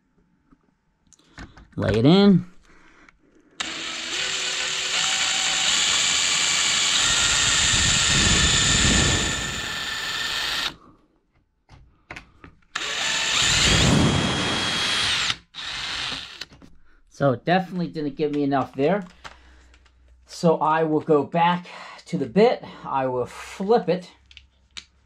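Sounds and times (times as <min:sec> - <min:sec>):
cordless drill running: 0:03.6 - 0:10.8, 0:12.7 - 0:16.5.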